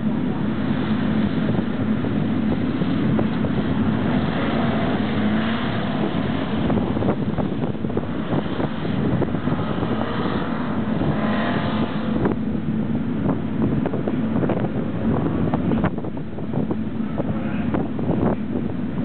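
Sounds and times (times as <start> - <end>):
car engine under load: 0.0 - 19.0
wind thumps on microphone: 0.0 - 19.0.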